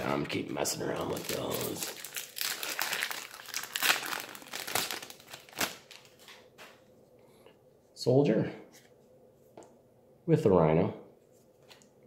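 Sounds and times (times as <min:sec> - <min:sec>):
foil wrapper tearing and crinkling: 0:00.8 - 0:06.3.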